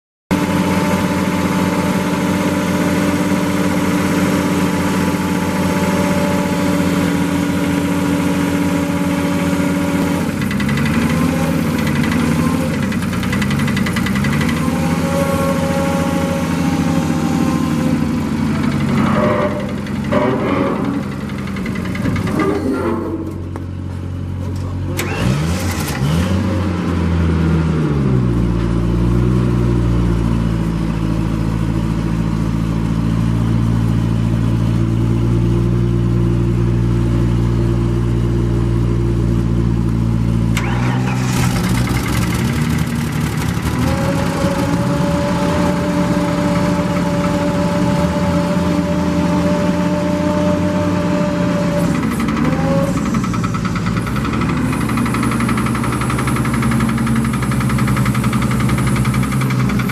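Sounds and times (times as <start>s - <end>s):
industrial engine running: 0.3s - 59.9s.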